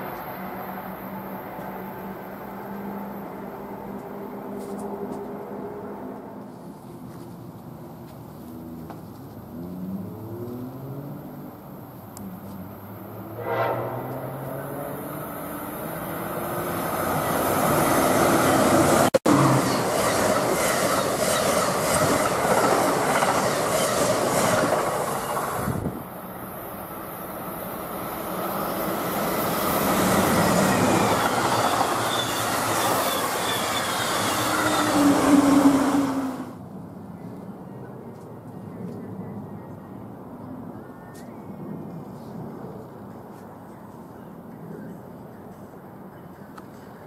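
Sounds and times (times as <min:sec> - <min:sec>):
train wheels rushing on rail: 0:12.5 - 0:36.6.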